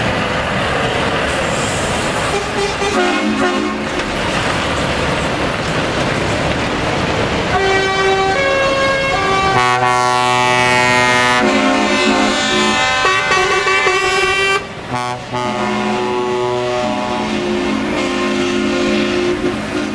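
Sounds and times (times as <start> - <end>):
diesel truck engines rumbling: 0.0 - 19.9
multi-tone air horn blasts: 2.3 - 4.0, 7.5 - 19.9.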